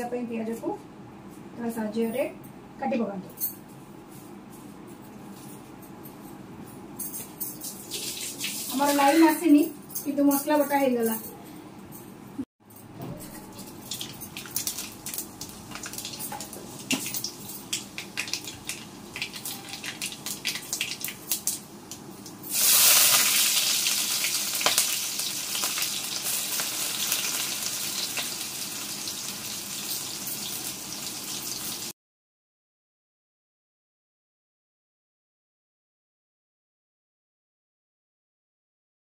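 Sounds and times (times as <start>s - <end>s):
spices crackling and popping in oil: 13.6s - 31.9s
onion sizzling in pan: 13.9s - 21.7s, 22.5s - 31.9s.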